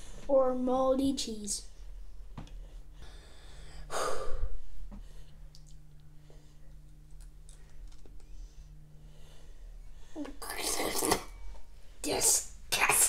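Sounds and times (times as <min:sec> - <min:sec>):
quiet breaths: 0:01.7 - 0:06.8, 0:07.5 - 0:10.4
person exhaling loudly: 0:03.9 - 0:04.6.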